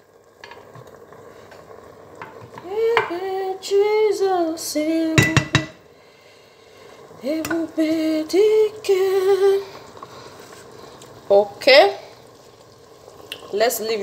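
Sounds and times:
woman singing slow tune: 2.6s - 5.8s, 7.1s - 9.8s
metallic clinks on cooking pot: 5.2s - 5.8s.

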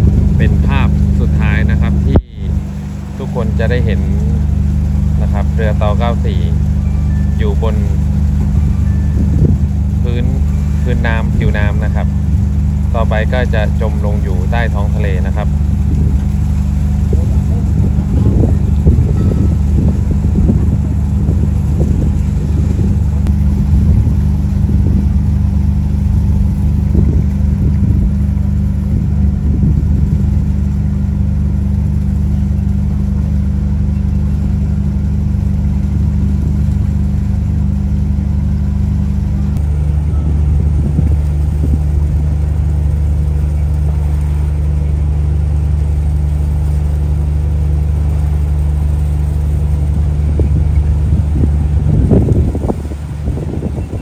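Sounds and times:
wind buffeting microphone: 0.0s - 46.2s, 49.0s - 54.0s
boat diesel engine droning: 0.0s - 54.0s.

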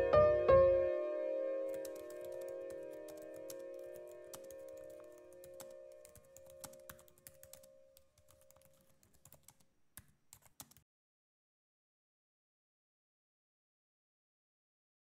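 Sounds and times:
keyboard typing clicks: 1.7s - 10.8s.

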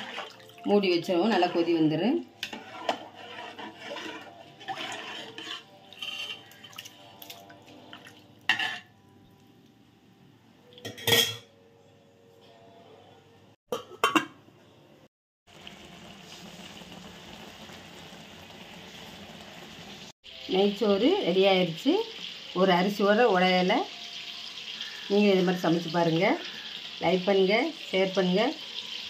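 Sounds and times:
metal pot and lid clattering: 8.5s - 9.0s, 10.8s - 11.5s, 13.7s - 14.4s.

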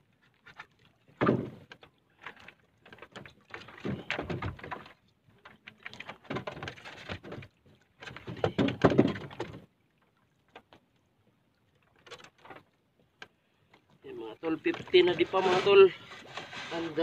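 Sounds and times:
fishing gear knocking and rustling: 0.2s - 9.7s, 11.8s - 13.9s.

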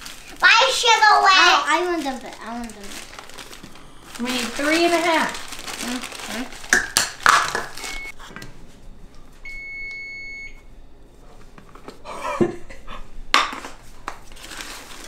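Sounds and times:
rustling handling noise: 0.0s - 9.7s, 13.7s - 15.0s
electronic beeping: 7.8s - 8.2s.

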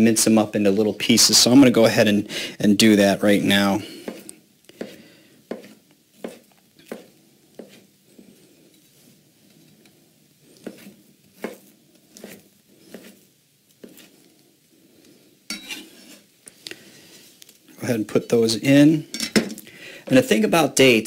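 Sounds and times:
knife chopping on cutting board: 4.8s - 7.8s, 10.6s - 13.2s.

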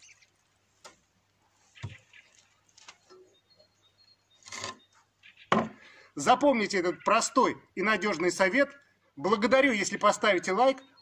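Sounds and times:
wooden plank knocks and rustles: 1.8s - 2.1s, 5.5s - 5.8s.

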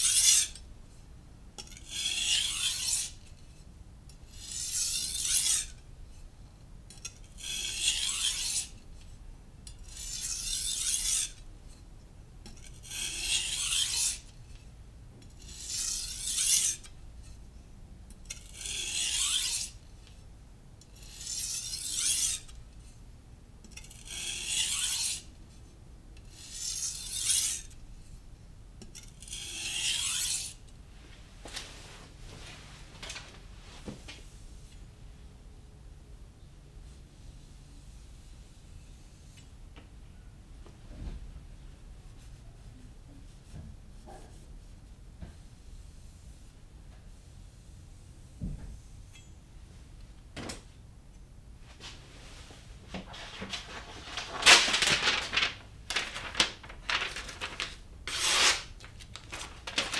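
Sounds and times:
knife scraping on whetstone: 0.0s - 0.6s, 1.6s - 3.1s, 4.4s - 5.7s, 7.0s - 8.7s, 9.9s - 11.4s, 12.6s - 14.3s, 15.4s - 17.4s, 18.3s - 19.8s, 21.0s - 22.5s, 23.8s - 25.2s, 29.2s - 30.5s, 58.1s - 58.7s.

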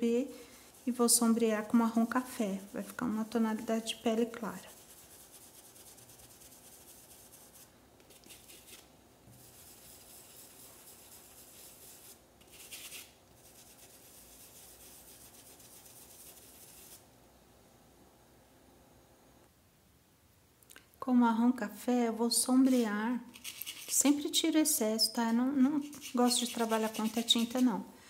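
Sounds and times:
paintbrush rubbing on fabric: 0.6s - 3.0s, 4.6s - 17.0s, 22.6s - 24.2s, 25.7s - 27.7s.

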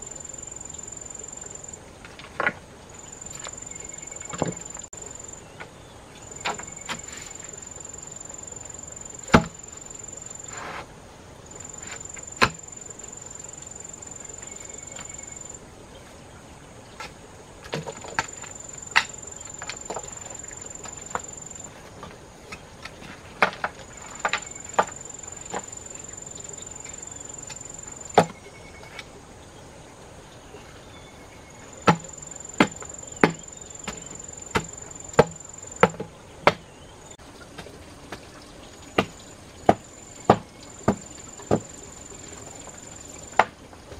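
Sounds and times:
insect droning: 0.0s - 15.8s, 16.8s - 22.2s, 23.0s - 36.2s, 38.2s - 43.9s
wooden pole knocking soil: 9.2s - 9.6s, 11.6s - 12.8s, 17.0s - 25.8s, 31.8s - 36.7s, 39.0s - 41.8s.

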